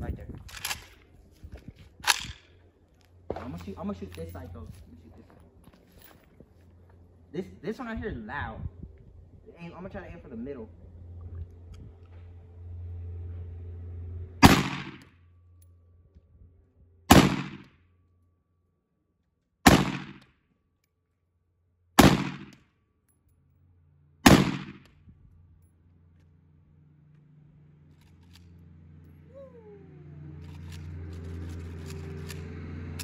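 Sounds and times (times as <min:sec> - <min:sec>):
gunshots with echo: 0:14.4 - 0:15.0, 0:17.1 - 0:17.7, 0:19.7 - 0:20.2, 0:22.0 - 0:22.6, 0:24.2 - 0:24.8.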